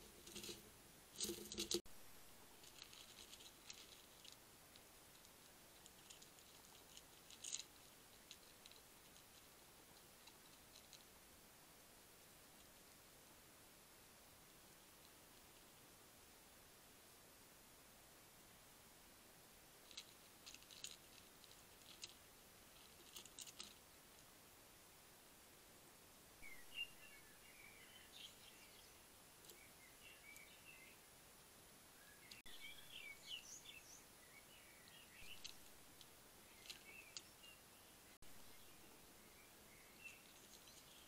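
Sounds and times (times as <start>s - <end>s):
hedgehog chewing dry kibble: 1.2s - 9.6s, 19.9s - 23.8s
faint high chirping: 26.4s - 31.2s, 31.8s - 41.0s.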